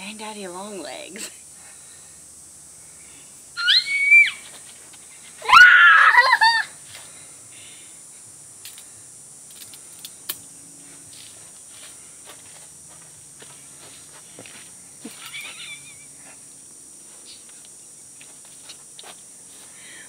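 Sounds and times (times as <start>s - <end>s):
person shrieking: 3.6s - 4.4s, 5.4s - 6.8s
person squealing: 3.6s - 4.4s, 5.4s - 6.7s.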